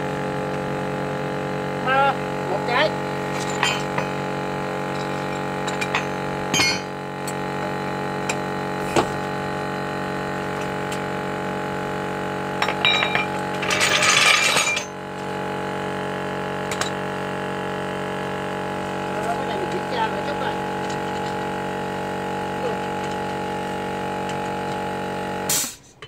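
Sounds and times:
steady hum: 0.0 - 26.0
metal tools clinking: 3.2 - 4.2, 4.9 - 6.9, 12.6 - 15.0.

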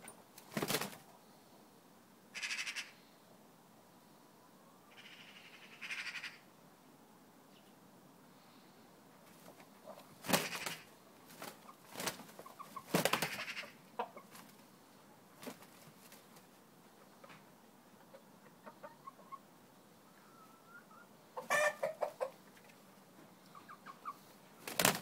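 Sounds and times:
rooster wings flapping: 0.4 - 1.1, 10.2 - 13.6, 15.4 - 16.5, 24.6 - 25.0
rooster clucking softly: 12.4 - 14.3, 16.9 - 24.3.

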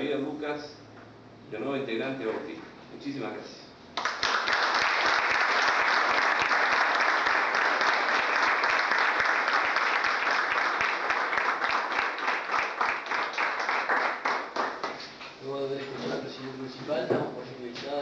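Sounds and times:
audience applauding: 4.0 - 15.2.

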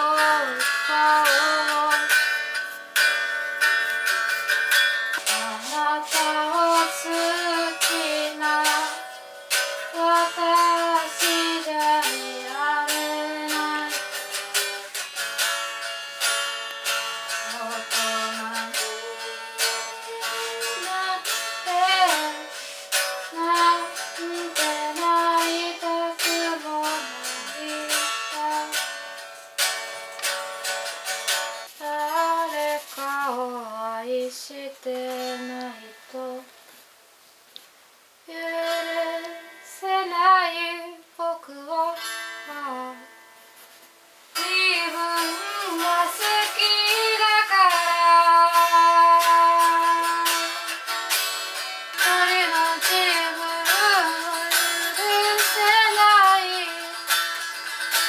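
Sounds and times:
electric guitar melody: 0.0 - 32.4, 44.4 - 58.0.

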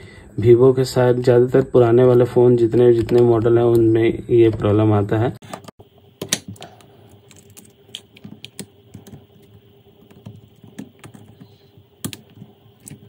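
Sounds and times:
faint steady hum: 0.0 - 13.0
fingers clicking plastic parts: 1.6 - 3.9, 5.5 - 9.2.

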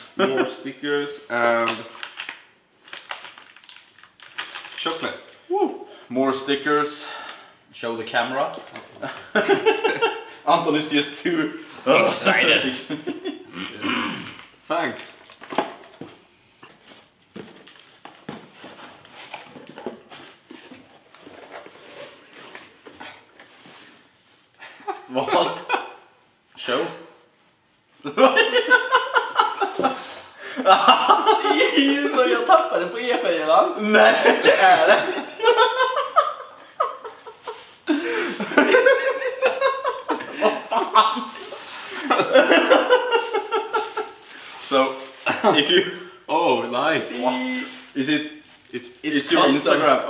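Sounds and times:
men laughing: 0.0 - 0.8, 9.0 - 10.4, 11.8 - 14.0, 24.6 - 26.1, 28.0 - 44.5, 45.2 - 46.0.

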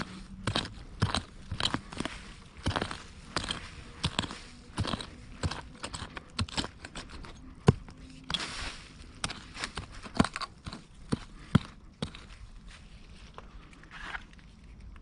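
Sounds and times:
scrape and rustle of leaves: 1.8 - 5.3, 8.0 - 10.0, 12.3 - 14.8.

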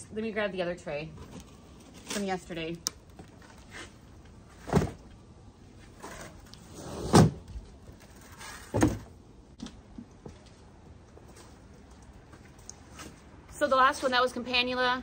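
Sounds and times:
sliding scrape: 6.0 - 7.4.

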